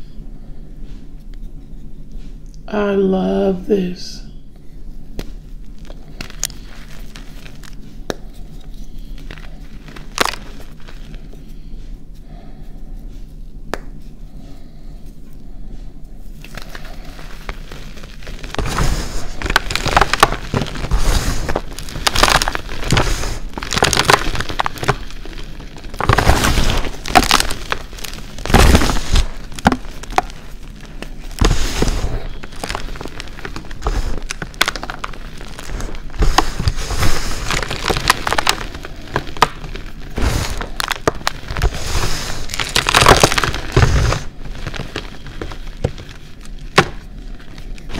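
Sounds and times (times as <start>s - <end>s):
chalk crunching in hands: 16.4s - 46.2s.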